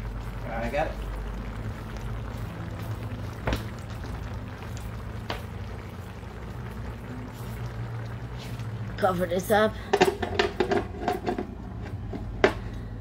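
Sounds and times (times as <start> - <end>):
pot bubbling: 0.0 - 13.0.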